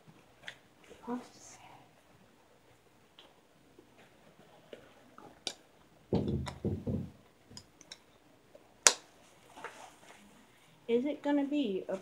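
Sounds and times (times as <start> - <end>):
dull thumps: 6.1 - 7.6.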